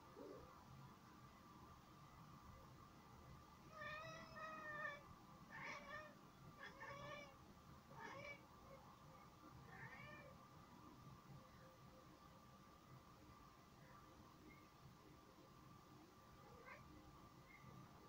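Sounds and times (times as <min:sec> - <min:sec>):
cat chirping meows: 0:03.7 - 0:07.4.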